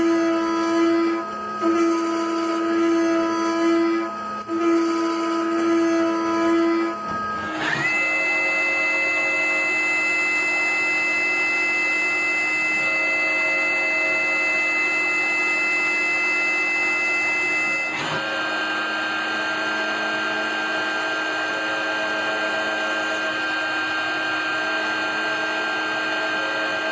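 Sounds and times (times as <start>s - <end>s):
milling machine spindle whining: 0.0s - 26.9s.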